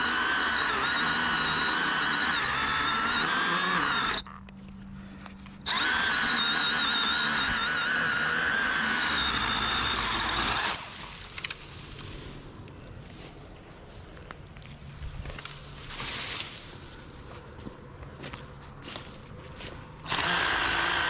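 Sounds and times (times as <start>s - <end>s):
chainsaw cutting at full throttle: 0.0s - 4.3s, 5.6s - 11.0s, 20.0s - 21.0s.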